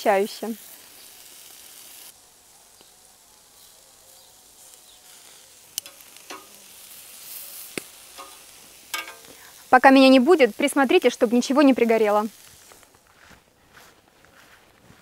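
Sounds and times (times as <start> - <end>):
meat sizzling on grill: 0.0 - 13.0
metal tongs clicking on grill: 5.7 - 9.4.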